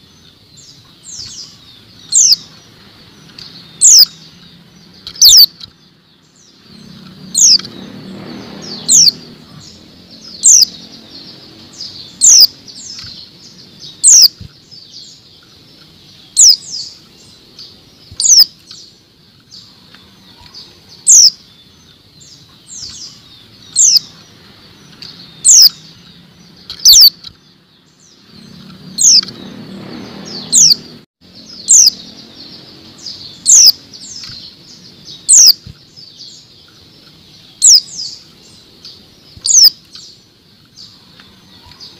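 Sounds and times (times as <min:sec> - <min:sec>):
bird high chirps sliding downward: 0:00.0 - 0:41.9
wing fluttering: 0:06.5 - 0:21.4.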